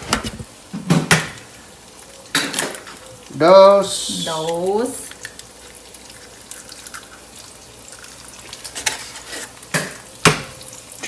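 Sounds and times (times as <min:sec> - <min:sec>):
eggs sizzling in a pan: 0:00.0 - 0:11.0.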